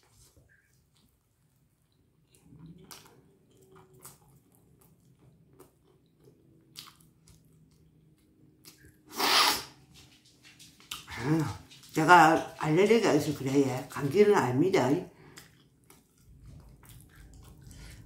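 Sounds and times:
person chewing crunchy food: 0:00.0 - 0:09.0, 0:15.2 - 0:18.0
person sneezing: 0:09.1 - 0:09.8.

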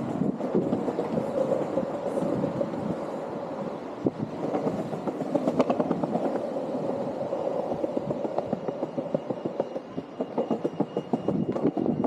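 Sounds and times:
skateboard wheels rumbling on stone: 0:00.0 - 0:09.7
wheels clacking over joints: 0:04.1 - 0:12.0.

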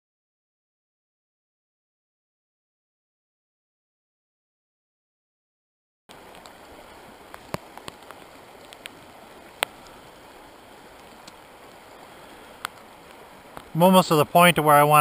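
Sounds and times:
stream flowing: 0:06.1 - 0:15.0.

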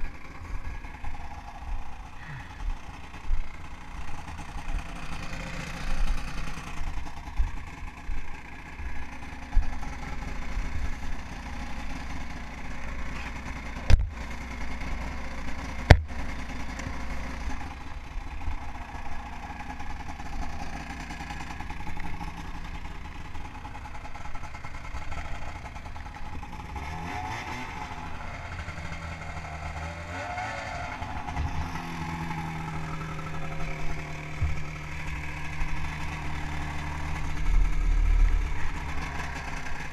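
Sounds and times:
snowmobile engine running: 0:00.0 - 0:39.9.

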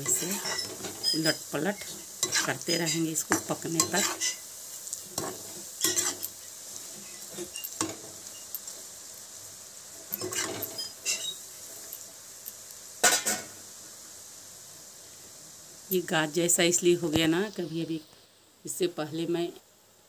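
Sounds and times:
metal spoon scraping a pan: 0:00.0 - 0:08.9, 0:10.0 - 0:12.1, 0:13.0 - 0:13.6
dough deep-frying in hot oil: 0:00.0 - 0:20.0.

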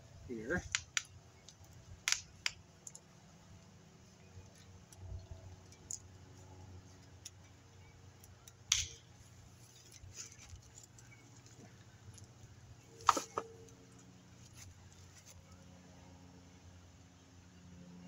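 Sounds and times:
pruning shears snipping: 0:08.7 - 0:09.0.

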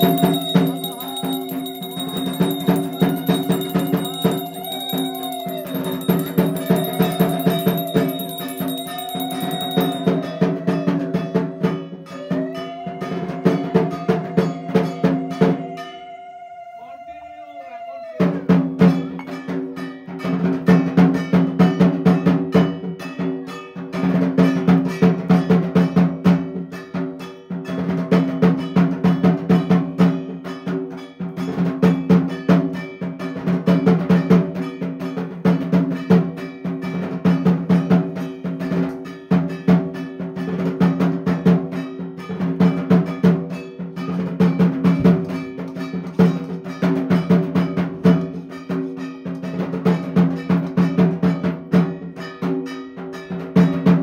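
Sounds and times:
metal percussion clanging: 0:00.0 - 0:16.0, 0:18.8 - 0:54.0
long held tone: 0:00.0 - 0:18.2.

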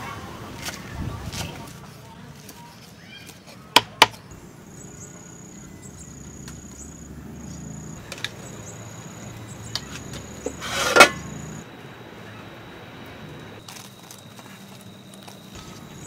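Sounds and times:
insects chirping: 0:03.8 - 0:16.0.

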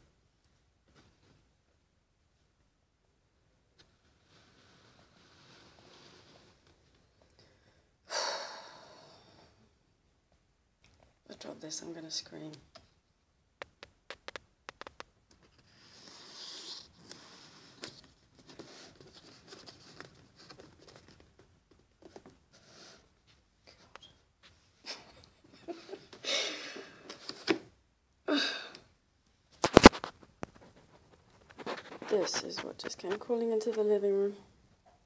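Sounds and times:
small handling clicks and rustles: 0:13.6 - 0:15.7, 0:17.0 - 0:22.5.

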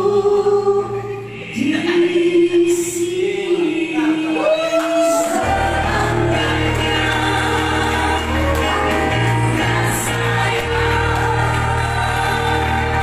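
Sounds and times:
person singing into a microphone: 0:00.0 - 0:08.8
live music through speakers: 0:00.0 - 0:13.0.

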